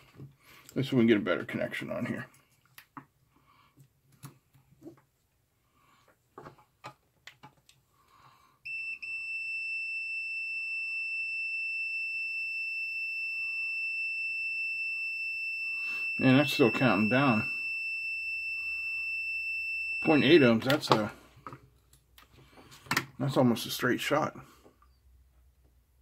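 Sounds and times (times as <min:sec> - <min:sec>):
multimeter continuity beep: 0:08.7 - 0:21.0.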